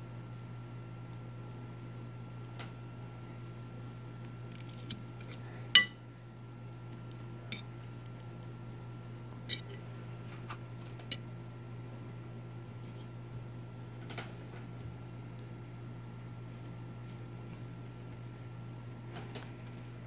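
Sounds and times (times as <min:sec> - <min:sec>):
fork clinking on ceramic plate: 0:05.8 - 0:06.0, 0:09.5 - 0:09.8.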